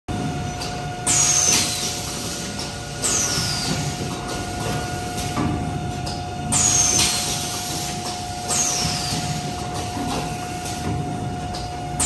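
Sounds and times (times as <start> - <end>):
machine humming: 0.1 - 12.0.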